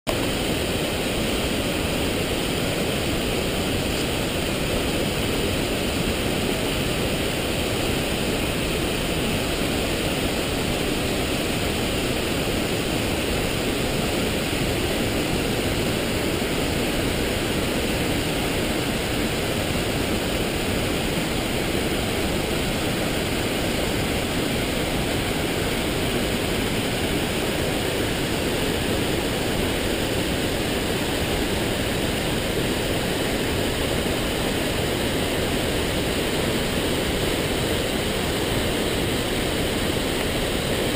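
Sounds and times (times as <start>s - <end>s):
waterfall and river rushing: 0.1s - 40.9s.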